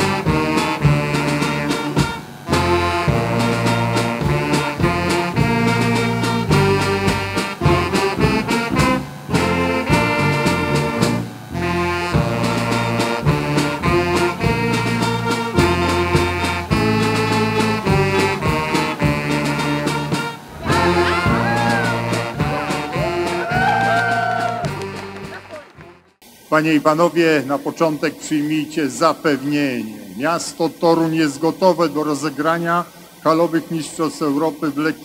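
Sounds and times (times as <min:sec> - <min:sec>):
upbeat instrumental music: 0:00.0 - 0:26.2.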